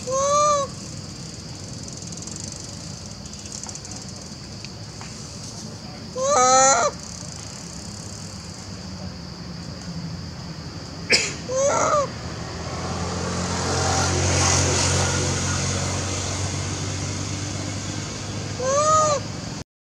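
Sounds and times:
monkey calls: 0.0 - 2.7, 6.0 - 7.4, 11.1 - 12.2, 18.5 - 19.4
low engine-like hum: 0.0 - 19.6.

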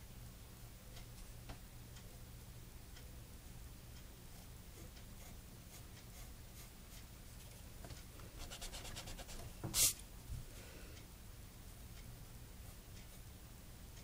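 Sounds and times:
pencil scratching on paper: 4.8 - 6.7, 8.4 - 9.9.

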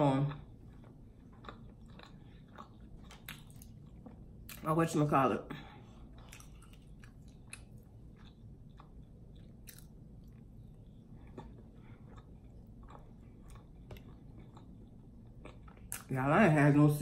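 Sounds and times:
close chewing: 0.5 - 4.6, 6.2 - 10.4.

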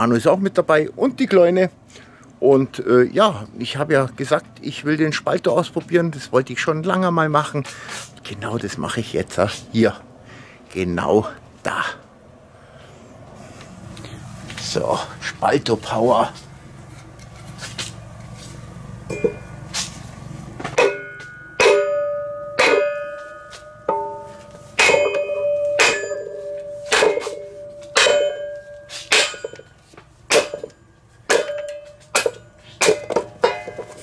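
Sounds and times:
metal frame ringing: 19.0 - 19.7, 20.7 - 34.0.

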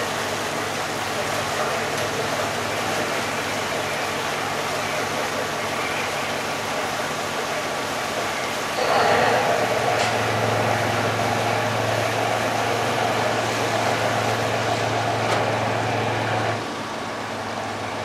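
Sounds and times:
diesel engine droning under load: 0.0 - 18.0.

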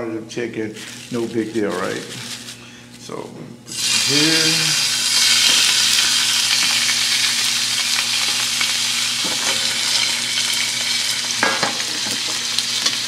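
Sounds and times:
chicken sizzling in hot oil: 3.7 - 13.0.

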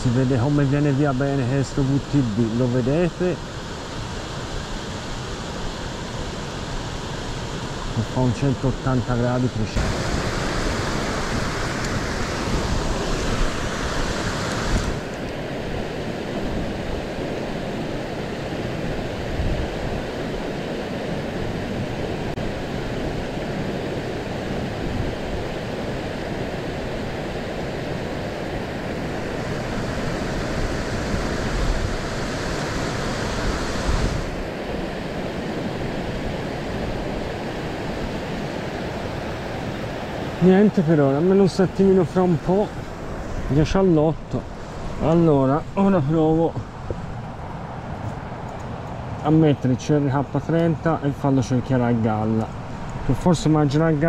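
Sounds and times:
water rushing over weir: 0.0 - 54.0
wind rumbling on microphone: 9.6 - 54.0.

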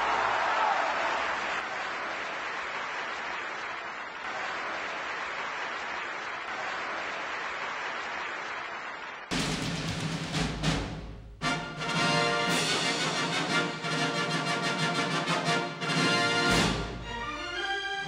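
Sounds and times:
audience applause: 0.0 - 9.3
music with drum hits: 9.3 - 17.1.

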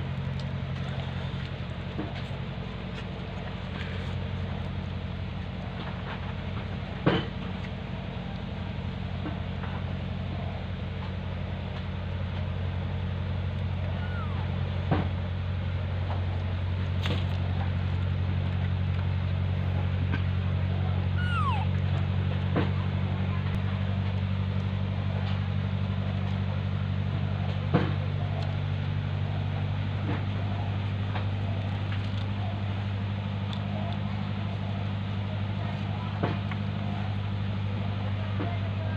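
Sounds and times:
steady low hum: 0.0 - 38.9
baby monkey squeaky calls: 13.9 - 14.6, 21.2 - 21.8.

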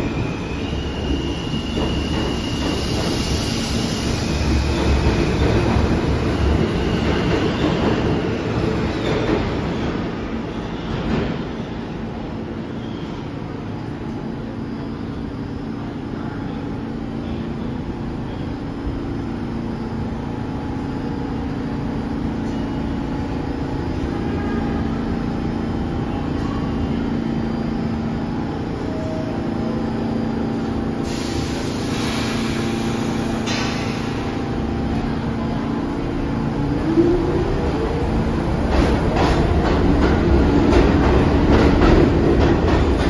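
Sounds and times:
subway train equipment hum: 0.0 - 43.0
air hiss: 31.0 - 34.4.

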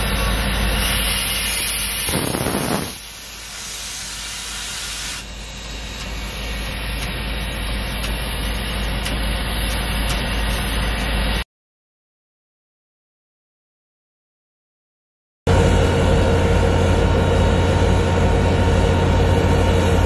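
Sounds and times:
steam hissing: 0.0 - 11.4
low rumble: 15.5 - 20.0.

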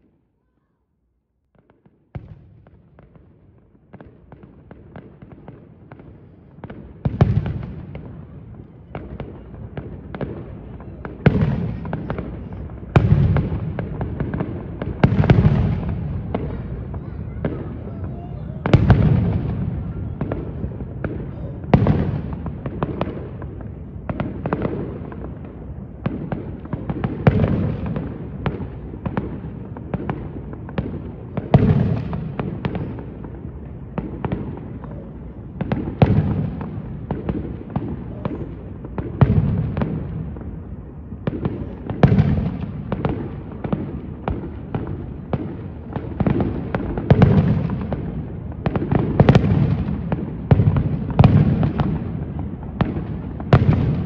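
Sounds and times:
firework pops and crackles: 1.6 - 54.0
firework shells booming: 41.2 - 54.0.

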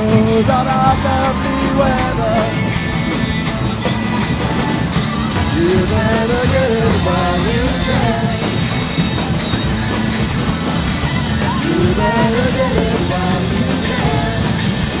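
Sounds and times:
person singing: 0.0 - 3.0, 3.8 - 8.8, 11.3 - 15.0
rock band playing: 0.0 - 15.0.

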